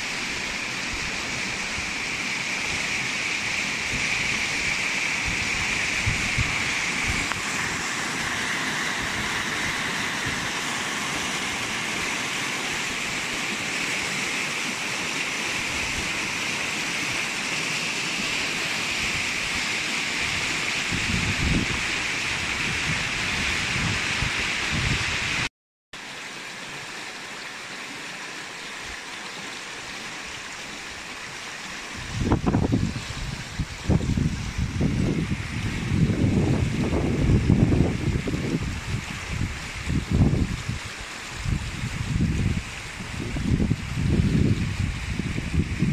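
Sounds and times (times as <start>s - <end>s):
river rushing over rocks: 0.0s - 45.9s.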